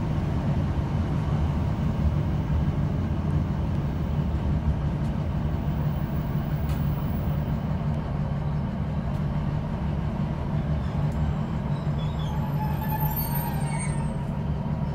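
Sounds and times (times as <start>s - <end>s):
train diesel engine drone: 0.0s - 14.9s
faint high-pitched squeals: 10.8s - 14.3s.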